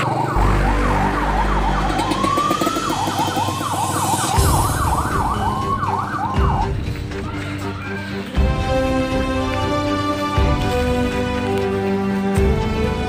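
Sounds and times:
electronic siren yelping: 0.0 - 6.9.

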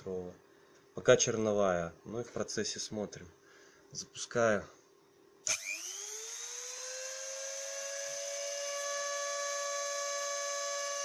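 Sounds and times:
spindle motor whine: 5.5 - 11.0.

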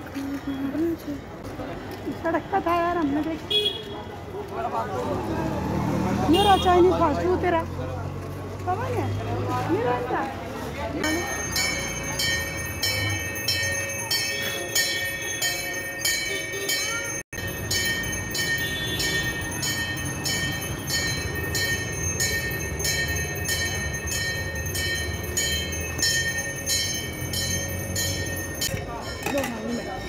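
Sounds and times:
jingling bell beat: 11.0 - 30.0.

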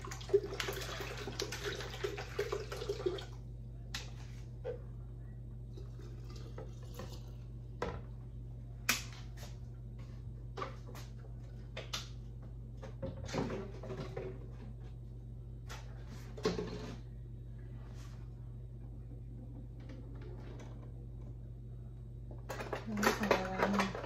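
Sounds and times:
juice pouring into jar: 0.0 - 3.4, 5.8 - 7.4
steady low hum: 0.0 - 24.0
kitchen items clicking and knocking: 22.4 - 24.0.

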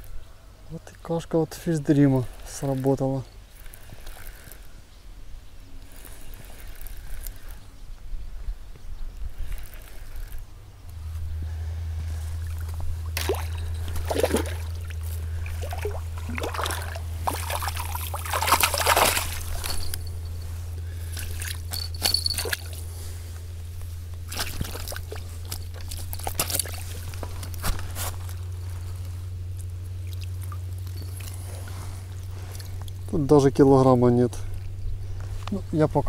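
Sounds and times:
steady low hum: 0.0 - 36.0
fish thrashing and splashing in water: 12.4 - 20.1, 24.3 - 27.1.

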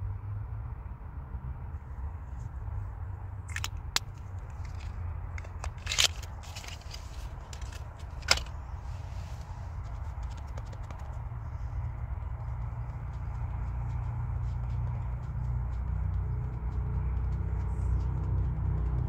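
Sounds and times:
makeup containers clicking and scraping: 3.5 - 11.2
low rumble inside a car: 7.2 - 19.0.

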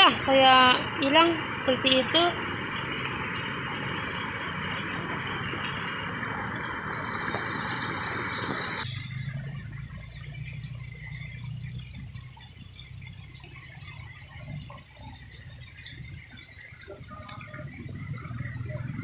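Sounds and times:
floodwater rushing over rocks: 0.0 - 8.8.

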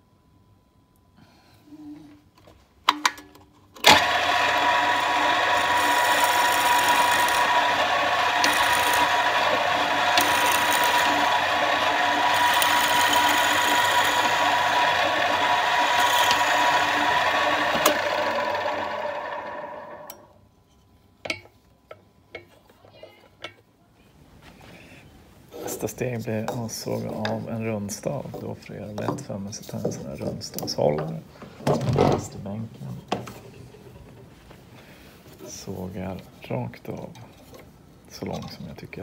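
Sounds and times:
drill bit boring through wood: 3.8 - 20.1
drill press motor whining: 3.8 - 20.3.

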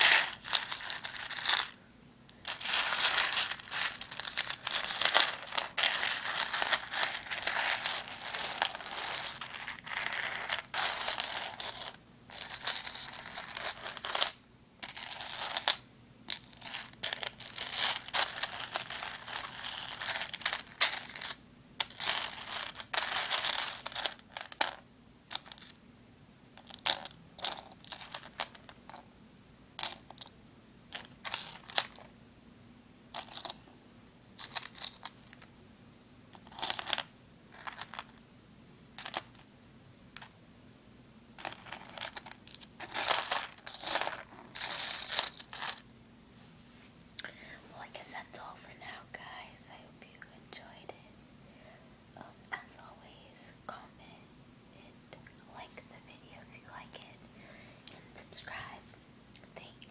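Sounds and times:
seashells clicking and scraping: 0.0 - 1.8, 2.4 - 15.8, 16.6 - 25.7, 41.4 - 45.8.

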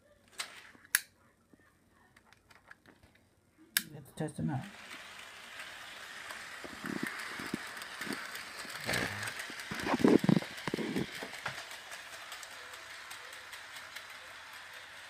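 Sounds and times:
model train motor whir: 4.6 - 15.0
wheels clicking on track: 4.7 - 15.0.

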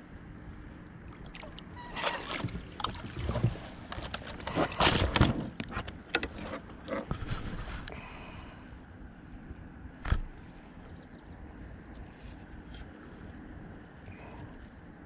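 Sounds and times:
water splashing: 1.1 - 4.2.

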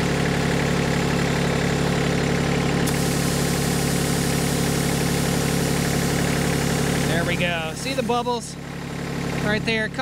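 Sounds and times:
engine idling: 0.0 - 10.0
air hissing into tire: 2.8 - 8.2.

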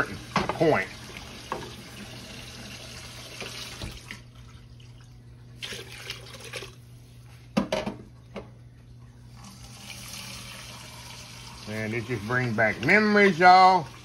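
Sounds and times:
steady low hum: 4.0 - 14.0.

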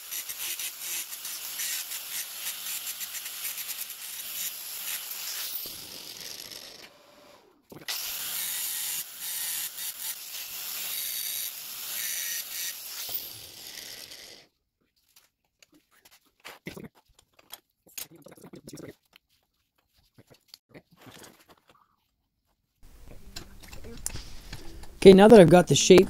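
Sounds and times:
angle grinder grinding steel: 0.0 - 14.5.

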